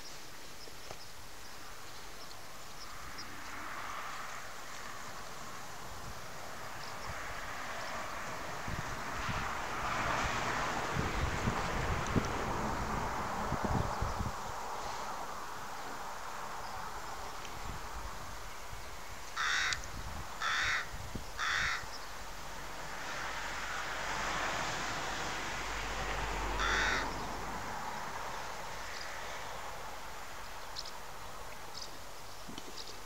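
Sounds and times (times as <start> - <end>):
steady background noise: 0.0 - 33.0
bird cawing: 19.4 - 19.8, 20.4 - 22.0, 26.5 - 27.4.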